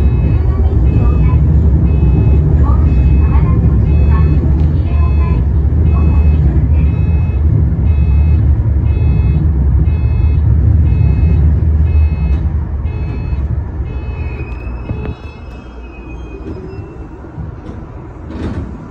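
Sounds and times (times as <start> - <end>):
train wheels rumbling: 0.0 - 18.9
high beeps: 1.9 - 4.4, 5.0 - 15.6.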